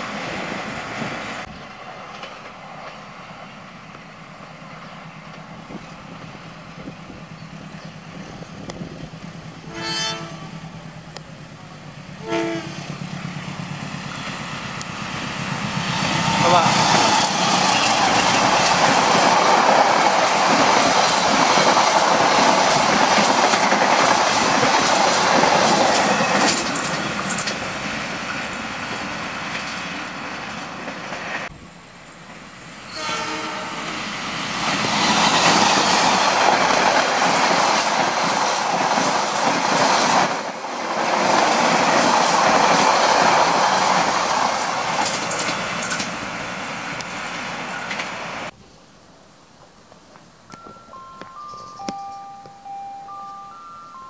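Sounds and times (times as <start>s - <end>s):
locomotive engine noise: 0.5s - 32.7s
wheels clattering over rail joints: 15.8s - 31.4s, 34.8s - 46.2s.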